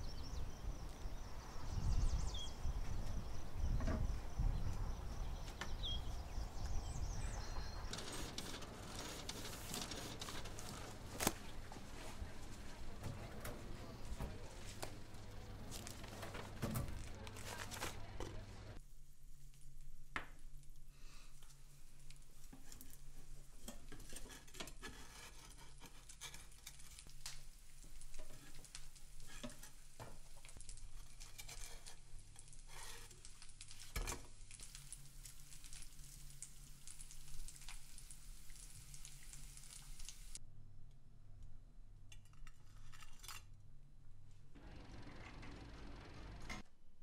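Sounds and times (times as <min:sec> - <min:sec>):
egg sizzling in a pan: 0:26.4 - 0:40.4.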